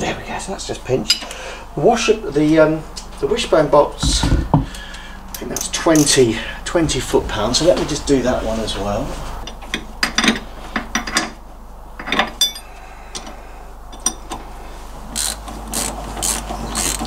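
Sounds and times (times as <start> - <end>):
ratchet wrench clicking: 15.2 - 17.0.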